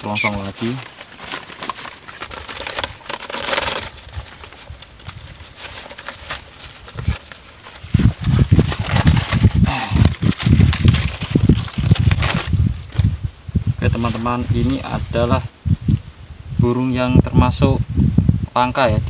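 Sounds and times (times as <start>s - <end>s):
paper crinkling and rustling: 0.0s - 13.2s.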